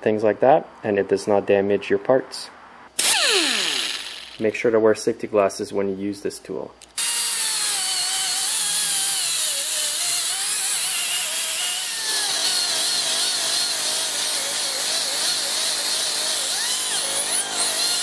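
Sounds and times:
die grinder high whine: 3.0 - 4.4, 6.9 - 18.0.

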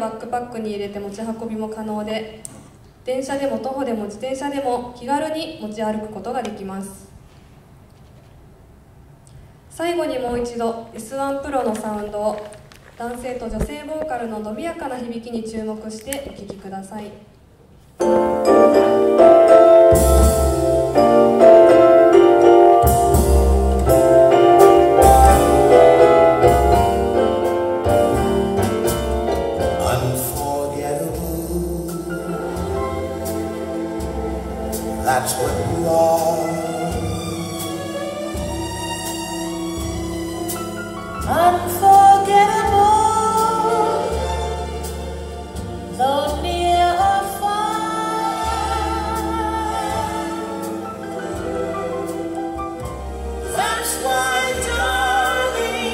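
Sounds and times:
piano music through speaker: 18.0 - 55.9
vocal music over loudspeaker: 29.6 - 38.5, 45.9 - 55.9.

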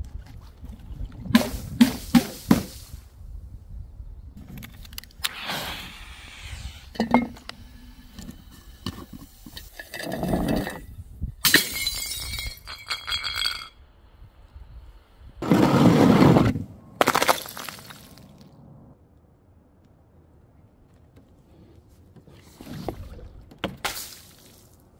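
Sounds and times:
glass smashing: 11.4 - 13.7
glass shards tinkling: 11.5 - 13.8.

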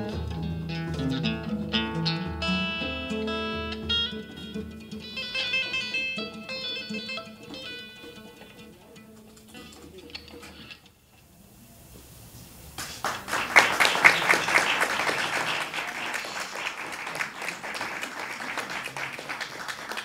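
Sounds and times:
guitar music: 0.0 - 11.0
audience applauding: 12.8 - 20.0.

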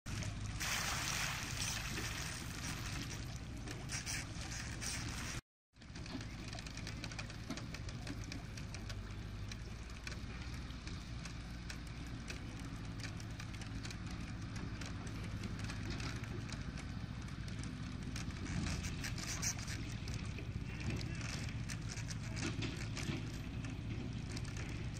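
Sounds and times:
faint clicks and ticks: 5.8 - 24.9.

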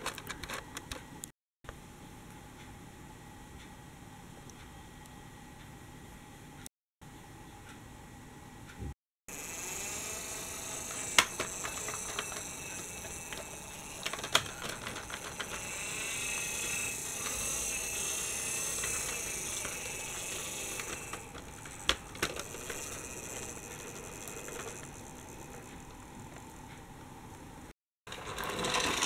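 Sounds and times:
toy tram whirring on track: 9.3 - 26.7, 28.1 - 29.0
sharp clicks of toy tram: 9.4 - 26.0, 28.1 - 29.0.

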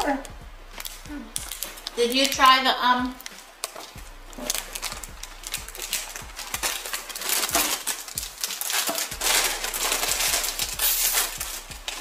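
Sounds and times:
plastic chip bag crinkling: 3.2 - 12.0.

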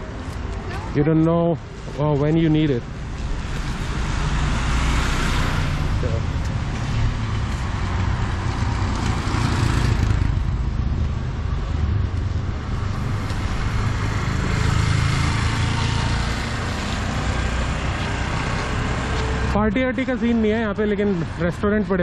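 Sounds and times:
vehicles passing: 0.0 - 22.0.

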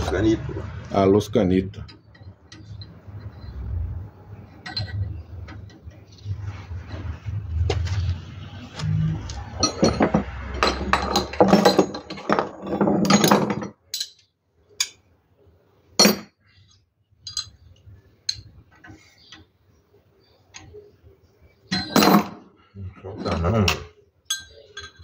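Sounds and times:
wrench and metal fittings clinking: 4.6 - 5.1, 9.6 - 12.5, 13.1 - 15.0, 16.0 - 17.6, 24.3 - 25.0.

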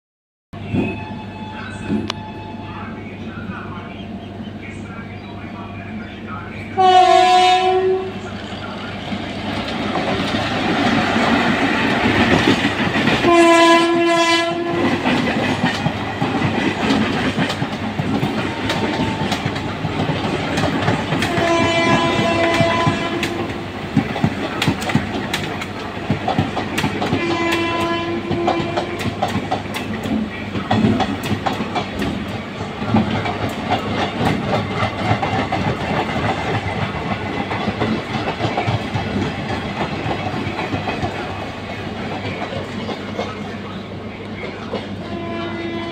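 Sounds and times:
train horn blowing: 0.6 - 2.8, 6.8 - 8.3, 13.2 - 15.2, 21.1 - 23.6, 27.1 - 29.3, 45.0 - 45.9
train wheels clattering on rails: 9.0 - 45.9.

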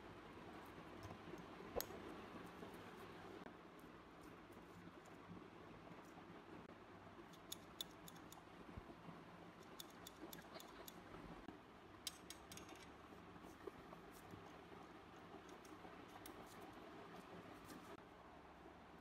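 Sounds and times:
clicks of small steel parts: 12.1 - 13.0.

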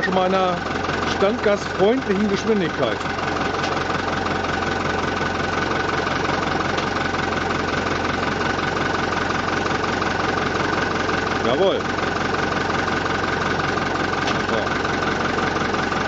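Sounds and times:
diesel tractor engine idling: 0.0 - 16.0
hydraulics working: 0.0 - 16.0.

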